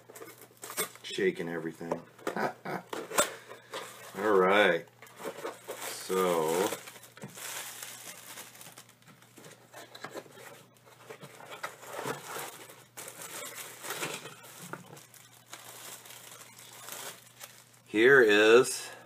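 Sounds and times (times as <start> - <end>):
bubble wrap and plastic bag crinkling: 3.6 - 18.8.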